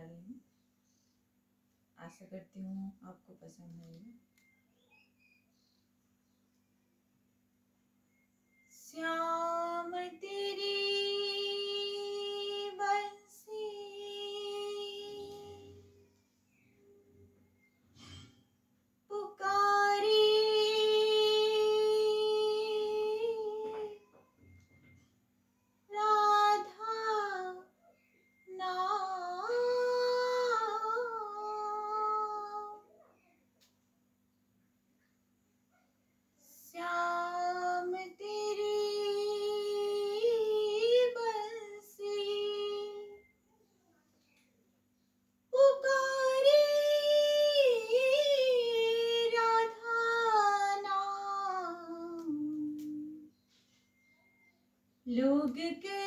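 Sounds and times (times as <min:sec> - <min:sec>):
woman singing unaccompanied: 0:08.7 - 0:16.0, 0:19.1 - 0:24.1, 0:25.9 - 0:27.8, 0:28.5 - 0:32.9, 0:36.4 - 0:43.3, 0:45.5 - 0:53.3, 0:55.0 - 0:56.0.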